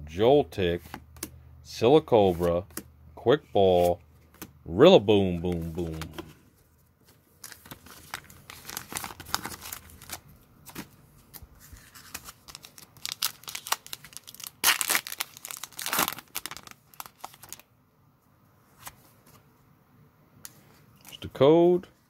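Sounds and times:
foil wrapper tearing and crinkling: 7.4s - 10.8s, 11.9s - 17.6s.

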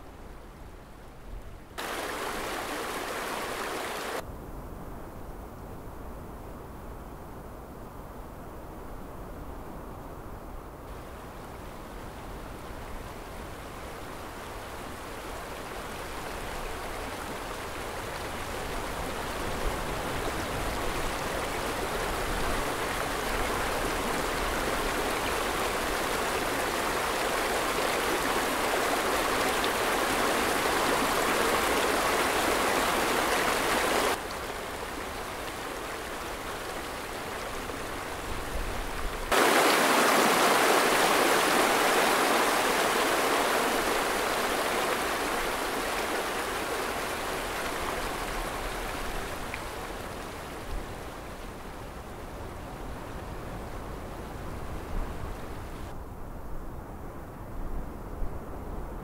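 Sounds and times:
rushing river water: 0.0s - 4.2s, 10.9s - 55.9s.

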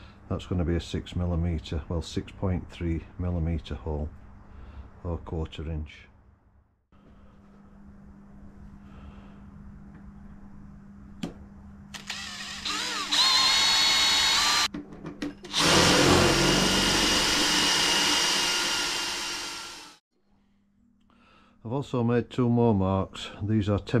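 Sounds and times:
cordless drill drilling metal: 12.0s - 14.7s, 15.5s - 20.0s.

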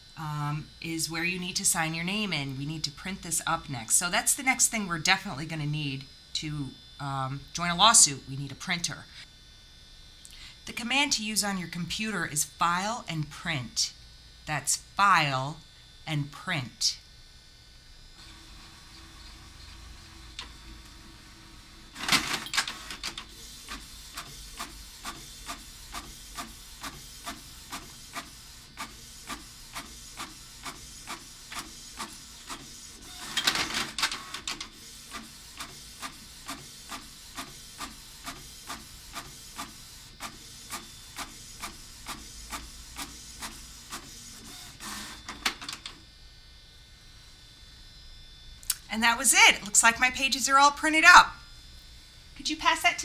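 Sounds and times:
printer paper feed noise: 18.2s - 46.1s.

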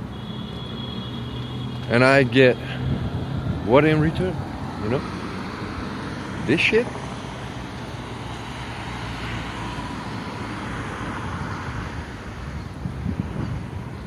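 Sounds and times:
cars passing: 0.0s - 14.0s.

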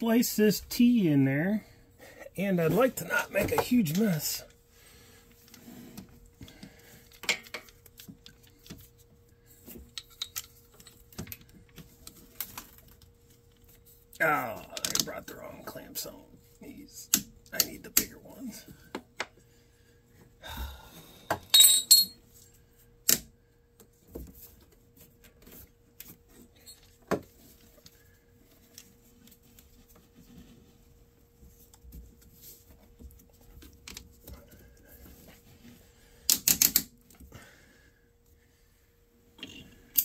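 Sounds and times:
hand tools clicking and clattering: 21.5s - 22.2s.

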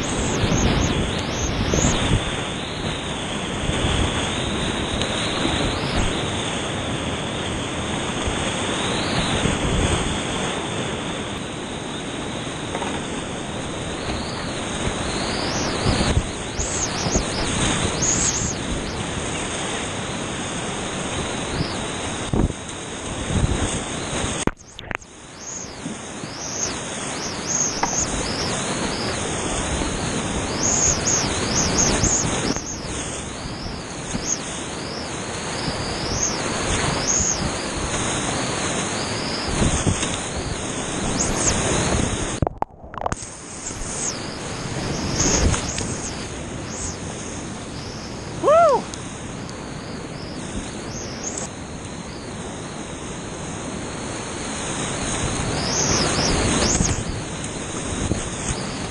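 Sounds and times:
whitewater rushing and splashing: 0.0s - 58.9s
short pitched cry: 48.4s - 48.9s.

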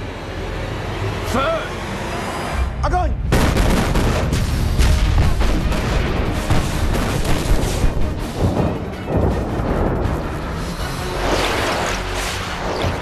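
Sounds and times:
film score music: 0.0s - 13.0s
explosions with low rumble: 3.2s - 10.6s.

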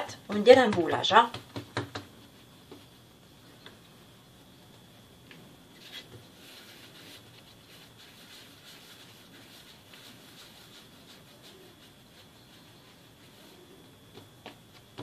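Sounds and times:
palm patting dough: 0.0s - 15.0s
hands rubbing dough on stone: 5.8s - 15.0s.

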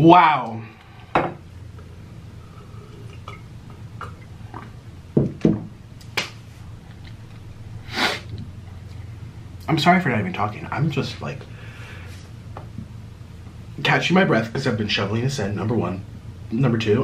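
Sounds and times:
breathy exhale: 11.5s - 12.3s.

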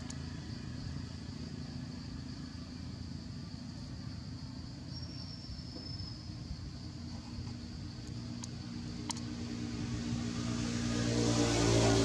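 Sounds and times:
faint thin high whistle: 4.9s - 6.3s.

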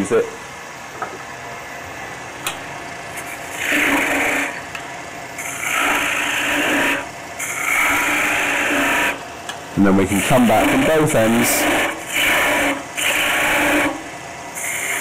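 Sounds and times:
lathe gouge hissing cuts: 3.2s - 4.6s, 5.4s - 9.2s, 9.8s - 15.0s.

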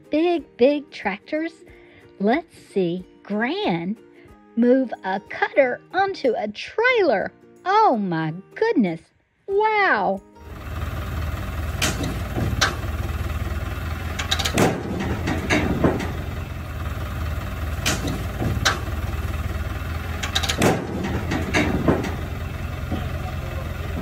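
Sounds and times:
tractor engine running: 10.4s - 24.0s
metal clanks and knocks: 10.5s - 24.0s.

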